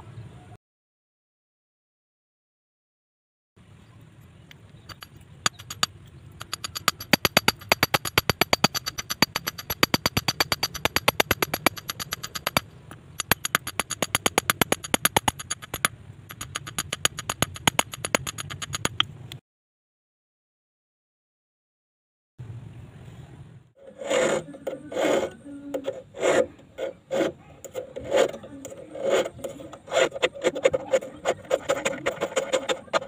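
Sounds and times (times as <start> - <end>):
hammer tapping wire on stone: 4.9 - 19.1.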